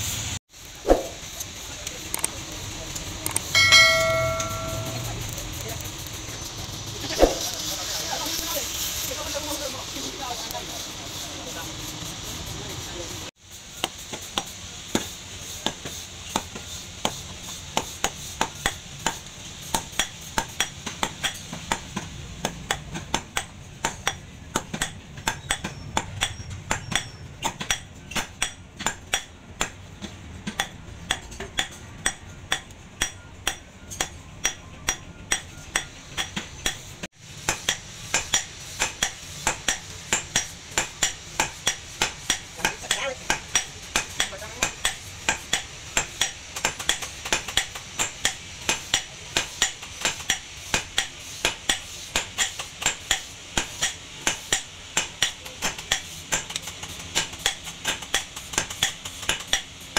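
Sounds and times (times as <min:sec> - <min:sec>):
hammer striking steel on anvil: 0:03.4 - 0:05.4, 0:13.8 - 0:59.8.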